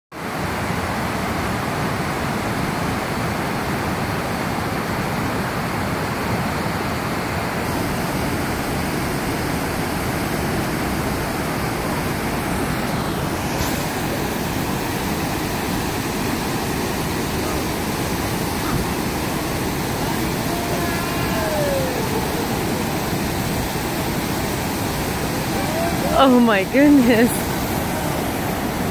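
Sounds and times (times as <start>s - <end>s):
water pouring over a waterfall: 7.6s - 26.4s.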